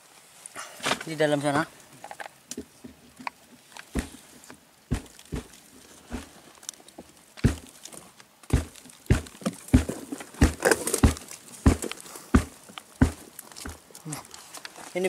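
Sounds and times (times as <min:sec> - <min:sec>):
rustling crackles: 0:00.0 - 0:15.0
dull thumps around a log: 0:03.9 - 0:06.4, 0:07.0 - 0:14.0.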